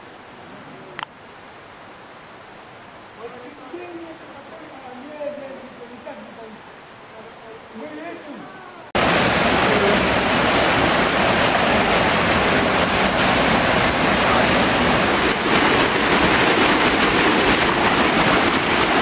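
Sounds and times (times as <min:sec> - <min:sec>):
mountain stream rushing: 0:00.0 - 0:19.0.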